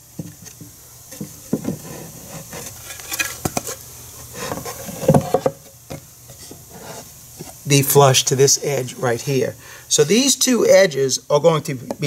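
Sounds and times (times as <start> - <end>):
wood scraping on wood: 0.2 - 7.7.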